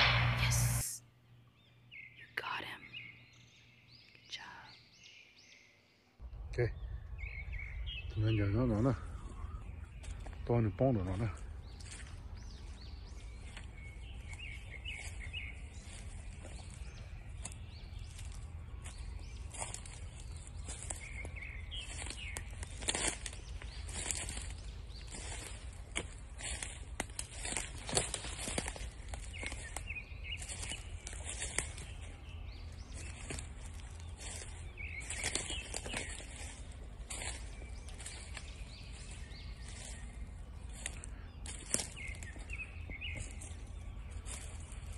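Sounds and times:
low rumble: 0:00.0 - 0:01.0, 0:06.2 - 0:10.5
bird chirps: 0:01.5 - 0:44.9
footsteps in dry leaves: 0:09.0 - 0:44.9.

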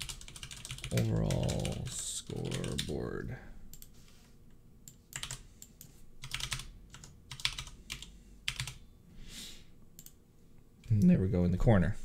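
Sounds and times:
typing on computer keyboard: 0:00.0 - 0:02.9, 0:05.1 - 0:08.8.

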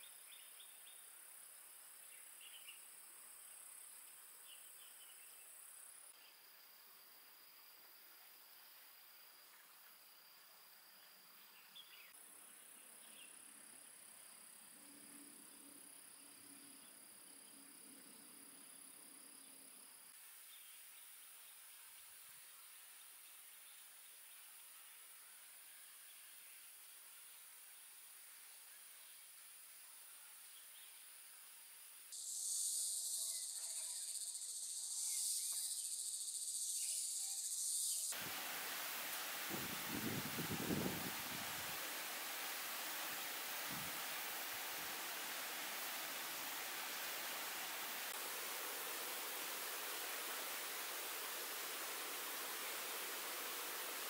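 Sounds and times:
soft hiss: 0:00.0 - 0:54.0
insects singing: 0:32.1 - 0:54.0.

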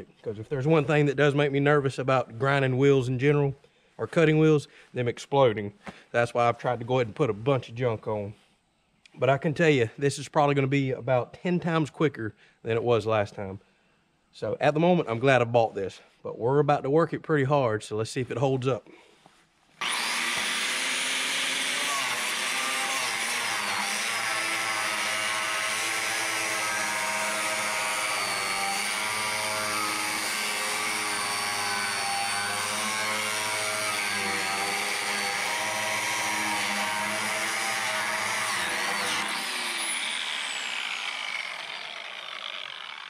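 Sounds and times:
angle grinder cutting steel: 0:19.8 - 0:43.0.

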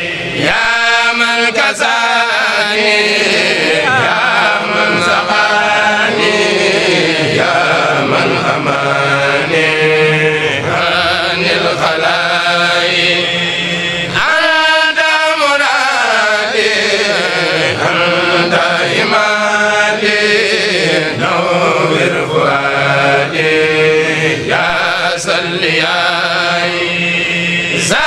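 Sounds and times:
group chanting devotional verses: 0:00.0 - 0:28.0.

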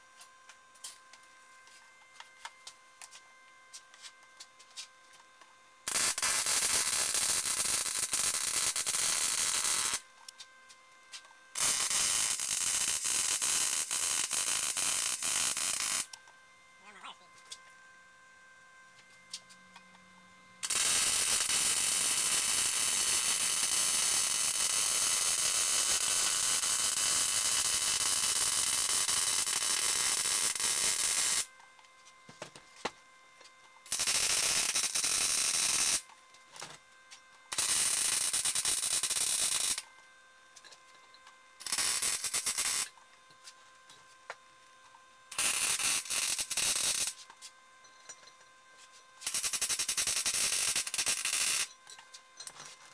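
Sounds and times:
welder arc crackling: 0:05.8 - 0:10.5, 0:11.1 - 0:16.2, 0:20.6 - 0:31.5, 0:33.8 - 0:36.7, 0:37.5 - 0:39.8, 0:41.6 - 0:43.0, 0:45.3 - 0:47.3, 0:49.2 - 0:51.7.

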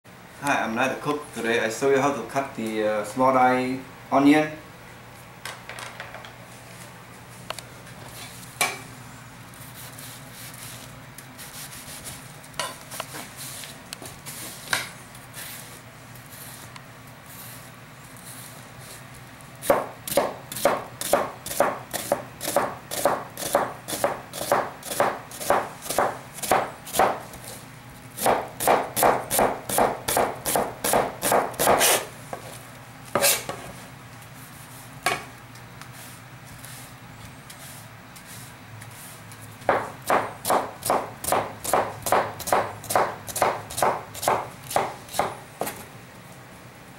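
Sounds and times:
cleaver chopping on plastic board: 0:19.7 - 0:27.2, 0:28.2 - 0:32.0, 0:39.7 - 0:45.8.

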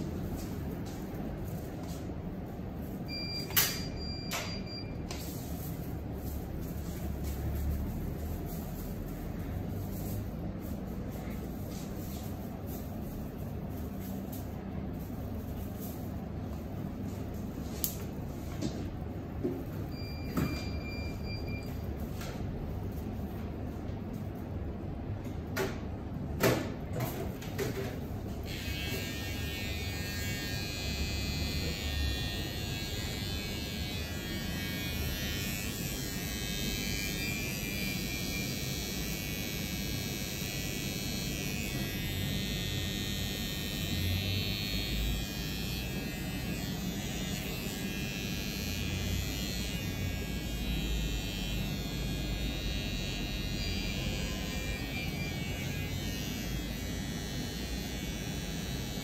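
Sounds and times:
electric hair clippers running: 0:28.4 - 0:59.0.

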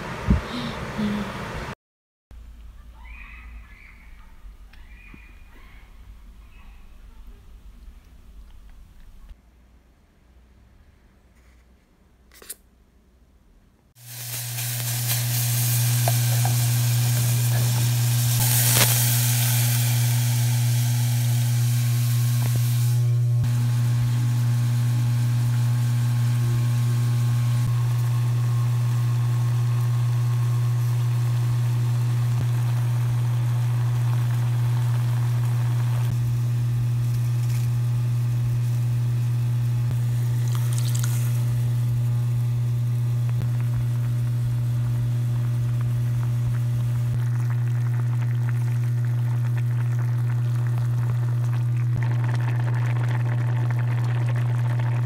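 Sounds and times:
water pouring into metal pot: 0:14.0 - 0:23.0, 0:40.0 - 0:41.8, 0:45.5 - 0:55.0
steady low hum: 0:14.1 - 0:55.0.

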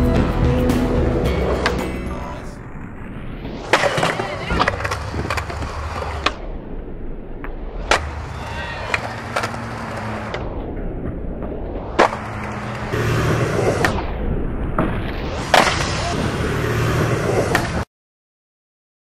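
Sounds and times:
skateboard wheels rolling on concrete: 0:00.0 - 0:06.5, 0:07.4 - 0:17.9
skateboard pops and landing slaps: 0:03.6 - 0:06.5, 0:07.8 - 0:10.5, 0:11.9 - 0:12.9, 0:14.8 - 0:16.1, 0:17.4 - 0:17.8.

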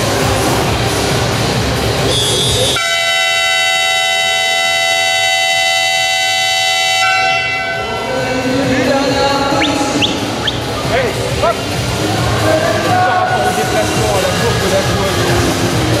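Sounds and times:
crowd noise: 0:00.0 - 0:05.0, 0:07.1 - 0:16.0
sports hall horn blast: 0:02.1 - 0:08.4.

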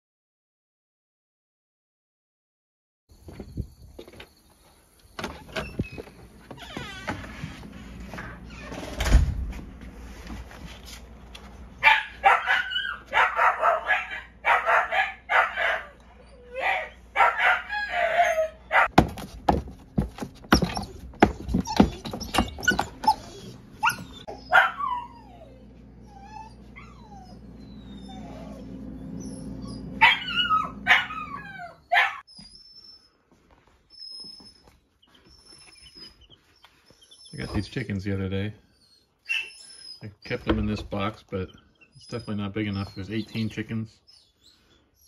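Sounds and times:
puppies whining and yelping: 0:12.2 - 0:18.9, 0:20.5 - 0:37.9, 0:38.6 - 0:45.0.

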